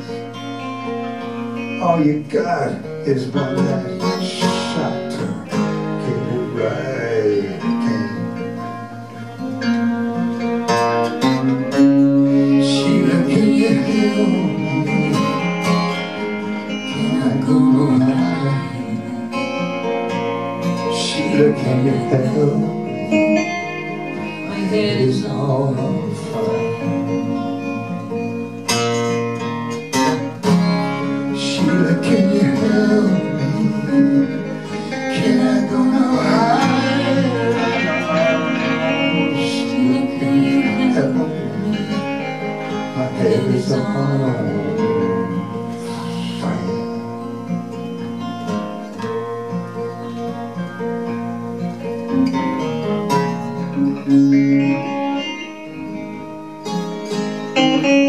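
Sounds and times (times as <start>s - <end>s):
strummed acoustic guitar: 0.0s - 58.0s
violin gliding melody: 30.6s - 45.8s.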